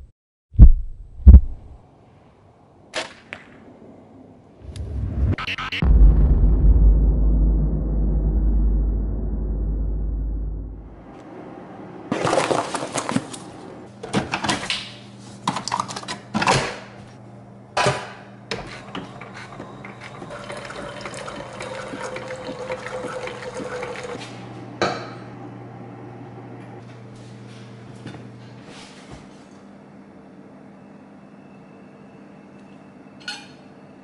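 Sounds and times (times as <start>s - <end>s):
low rumble: 4.6s - 11.2s
coffee pouring into a mug: 19.2s - 24.2s.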